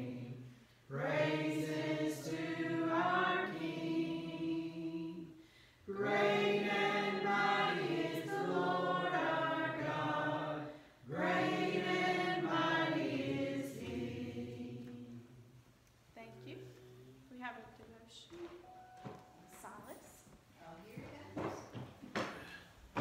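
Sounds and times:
congregation singing a hymn: 0.0 - 15.6.

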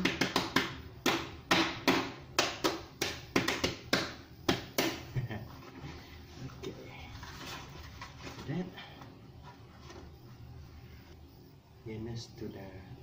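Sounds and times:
hand slapping plastic basin: 0.0 - 5.1.

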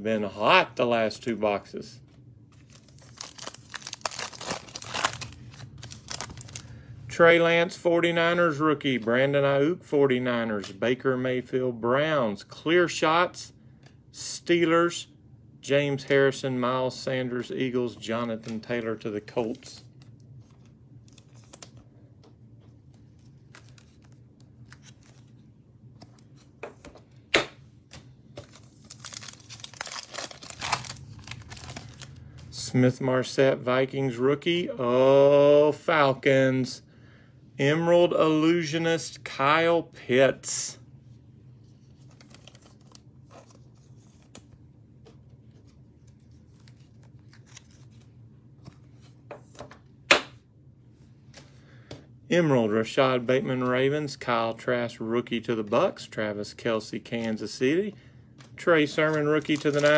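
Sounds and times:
wrapper crinkling and tearing: 2.6 - 6.7, 23.4 - 25.4, 28.4 - 32.4, 42.0 - 44.4, 46.2 - 48.1, 59.0 - 59.9.

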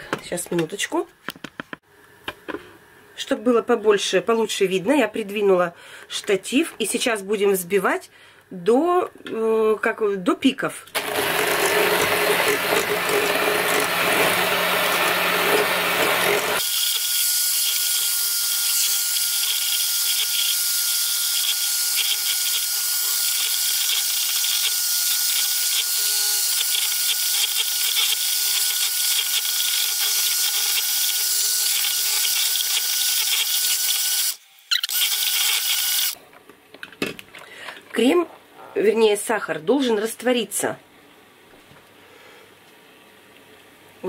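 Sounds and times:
electric hand mixer whining: 11.0 - 36.2.

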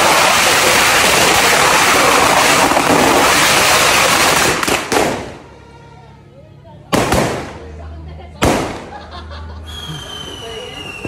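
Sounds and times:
firecracker bangs: 0.0 - 5.5, 6.9 - 7.6, 8.4 - 9.0
firecracker string crackling: 0.0 - 5.6.

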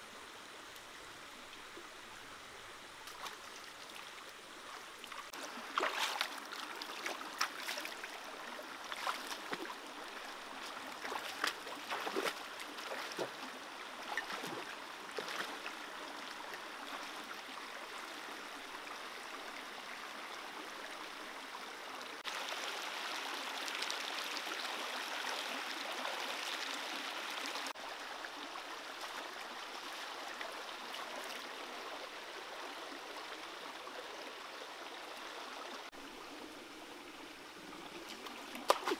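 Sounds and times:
stream rushing over rocks: 1.4 - 18.3, 21.7 - 38.9
sharp splashes and knocks: 5.7 - 6.3, 11.0 - 13.3, 38.1 - 38.9.

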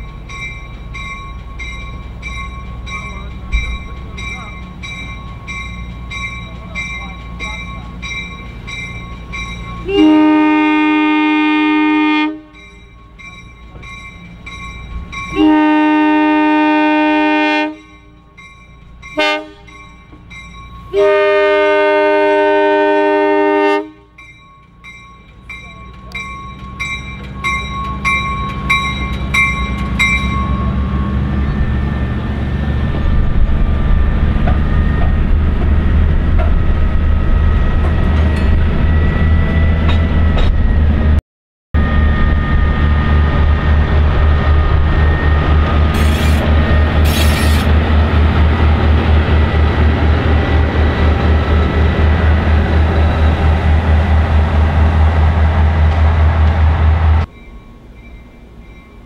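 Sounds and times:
crossing bell dinging: 0.0 - 10.8, 11.6 - 21.9, 24.0 - 32.6, 37.3 - 40.8, 57.2 - 59.0
diesel locomotive engine: 0.0 - 41.2, 41.8 - 59.0.

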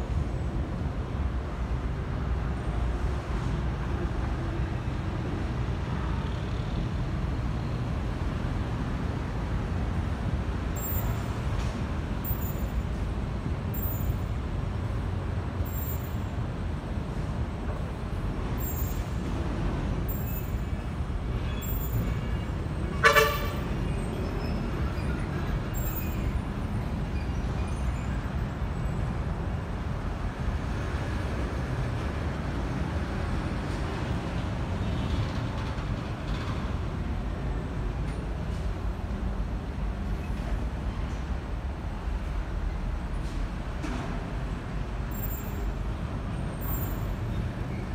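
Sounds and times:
road traffic rumble: 0.0 - 47.9
vehicle horn toot: 21.5 - 23.7.

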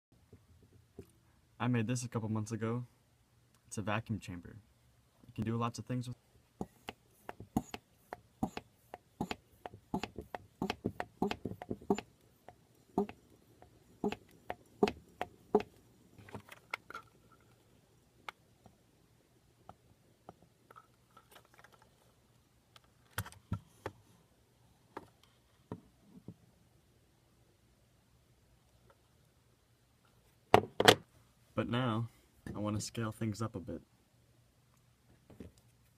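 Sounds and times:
hand vacuum pump clicking: 9.2 - 13.2.

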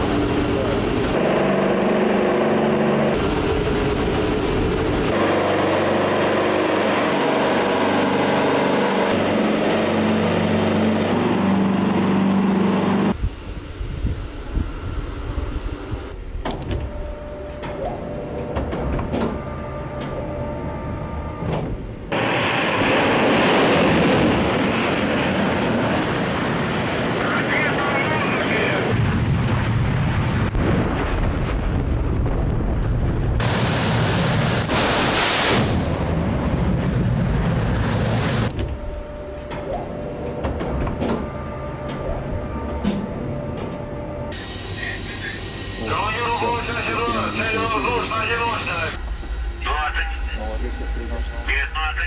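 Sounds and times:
engine drone: 0.0 - 52.0
mechanical whirring with clanks: 13.8 - 23.0, 38.3 - 51.7
loud rushing noise: 28.8 - 38.5.

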